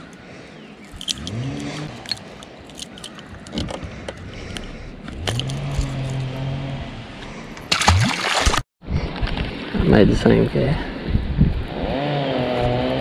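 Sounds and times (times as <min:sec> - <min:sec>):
fishing lure hooks jingling: 0:00.9 - 0:03.4.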